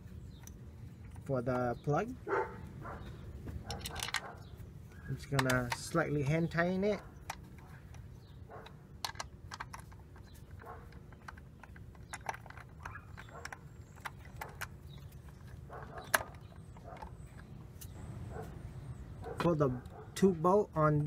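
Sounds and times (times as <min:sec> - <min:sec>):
socket wrench clicking on bolts: 0:03.6 - 0:04.3.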